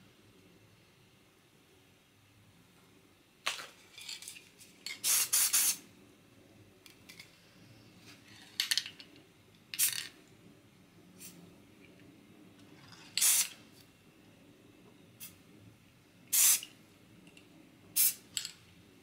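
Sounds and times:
spray-paint can hissing: 5.0 - 5.8, 13.2 - 13.6, 16.3 - 16.7, 18.0 - 18.2.

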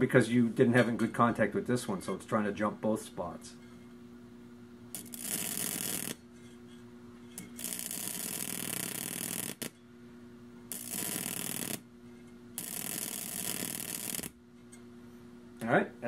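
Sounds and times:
sharp electric snaps: 4.9 - 6.2, 7.4 - 9.8, 10.7 - 11.9, 12.6 - 14.4
buzzing crackling electric arcs: 4.9 - 6.4, 7.3 - 9.8, 10.7 - 11.9, 12.5 - 14.4.

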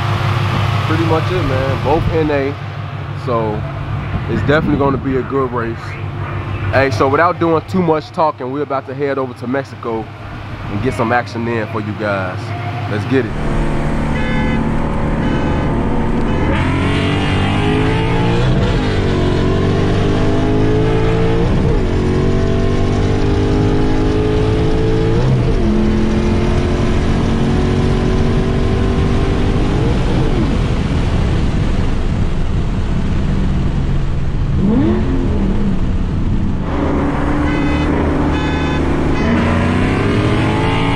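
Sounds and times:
car engine accelerating through gears: 12.7 - 40.9.

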